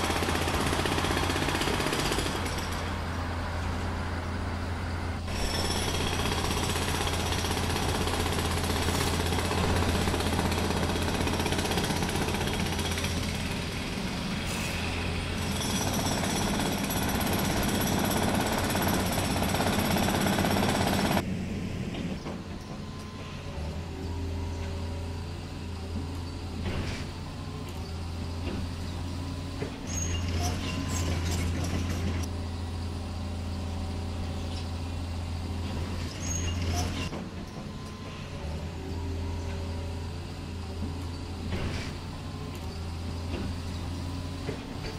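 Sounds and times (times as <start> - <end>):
jackhammer hammering: 0.0 - 3.0, 5.3 - 14.1, 15.4 - 21.2.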